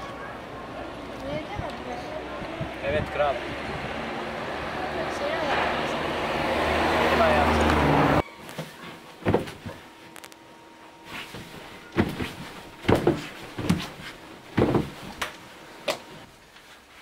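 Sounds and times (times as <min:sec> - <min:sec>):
bedding rustling: 0:08.5 - 0:10.2, 0:11.0 - 0:17.0
thumps on a bed: 0:09.2 - 0:09.8, 0:11.1 - 0:15.1.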